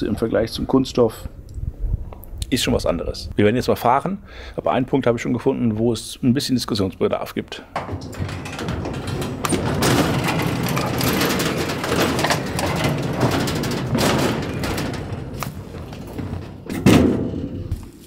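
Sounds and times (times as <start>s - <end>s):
grill rolling on wooden decking: 7.7s - 18.0s
knocks of rolling grill: 7.7s - 18.0s.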